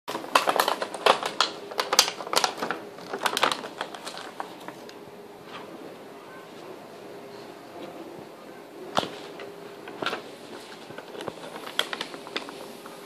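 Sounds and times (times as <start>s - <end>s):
puppy chewing crackling plastic: 0.1s - 5.0s, 8.9s - 13.0s.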